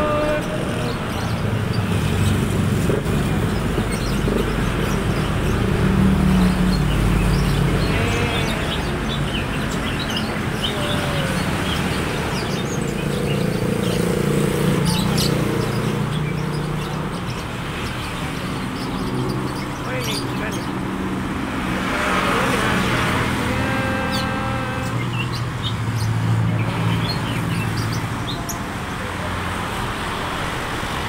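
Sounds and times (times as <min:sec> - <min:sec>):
birds chirping: 0:00.0 - 0:31.0
road traffic rumble: 0:00.0 - 0:31.0.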